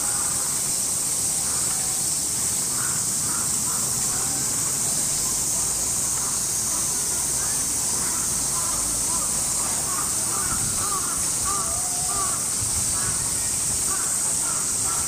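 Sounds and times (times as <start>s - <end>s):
cicadas chorus: 0.0s - 15.0s
distant crow caws: 2.7s - 4.5s, 7.4s - 13.2s, 13.8s - 15.0s.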